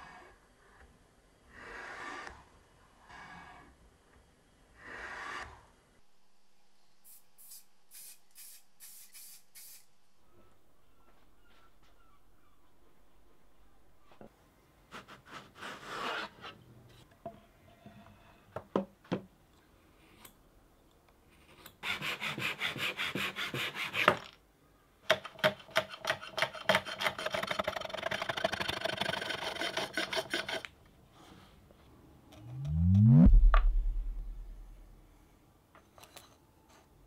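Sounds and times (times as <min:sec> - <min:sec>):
loud low whoosh: 0:32.4 - 0:35.1.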